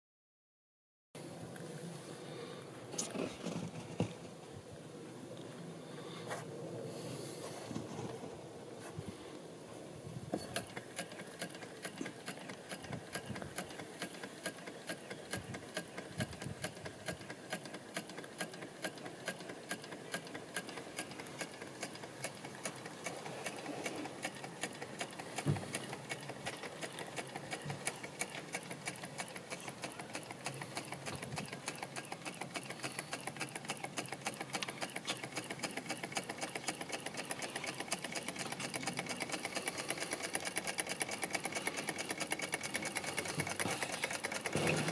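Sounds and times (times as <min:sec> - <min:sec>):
engine clicking clatter: 0:10.4 - 0:44.9.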